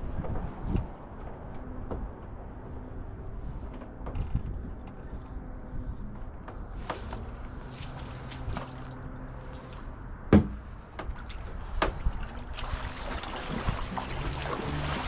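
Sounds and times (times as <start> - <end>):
loud sharp knock: 10.3 - 10.6
light clicks and knocks: 10.4 - 12.2.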